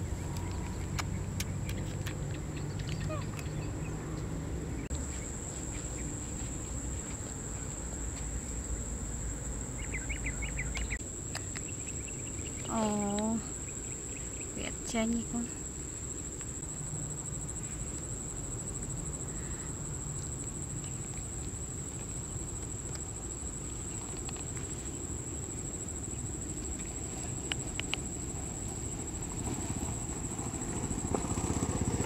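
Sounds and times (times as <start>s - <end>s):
motorcycle engine: 29.7s - 32.0s.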